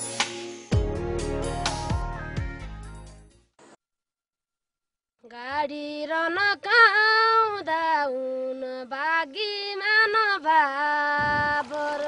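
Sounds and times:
woman singing: 5.2s - 12.0s.

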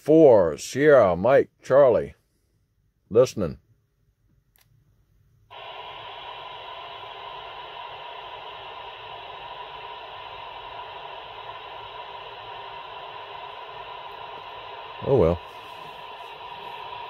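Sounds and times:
radio static hiss: 5.5s - 17.0s.

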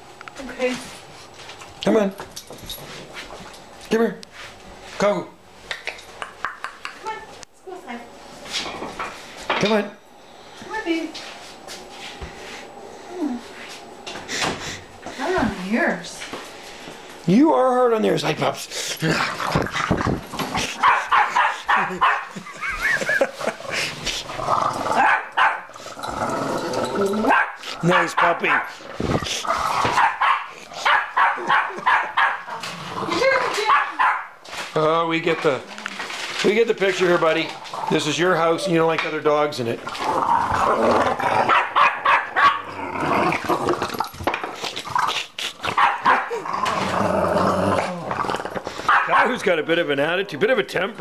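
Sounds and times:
small dogs barking and growling: 19.0s - 34.4s, 39.9s - 49.4s.

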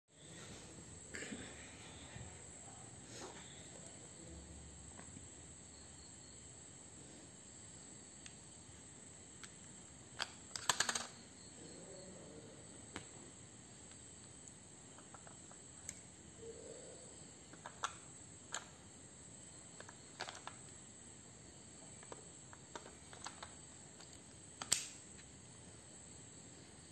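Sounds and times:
faint high-pitched chirring: 0.2s - 26.9s
light plastic clicks: 22.0s - 25.0s.

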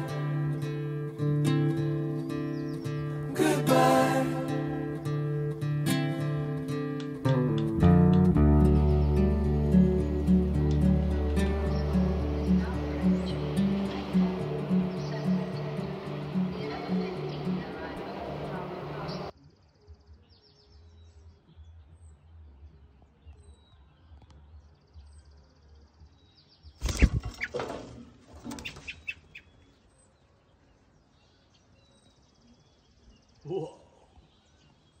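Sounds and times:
songbird trills: 0.0s - 3.3s, 4.5s - 22.4s, 28.5s - 35.0s
small bird chirps: 28.5s - 35.0s.

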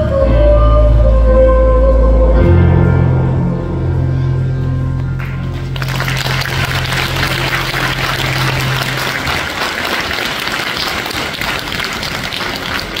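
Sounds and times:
audience applauding: 5.2s - 13.0s.

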